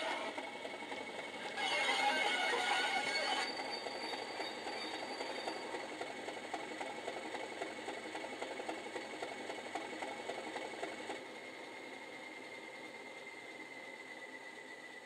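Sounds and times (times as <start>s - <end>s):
diesel engine sound from small speaker: 0.0s - 9.0s.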